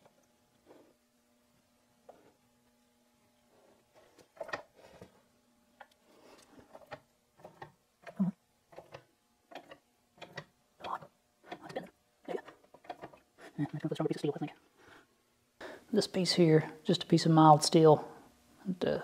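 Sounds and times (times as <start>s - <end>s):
metal clicks and scrapes: 4.0s - 5.1s, 5.8s - 11.8s, 12.4s - 13.2s.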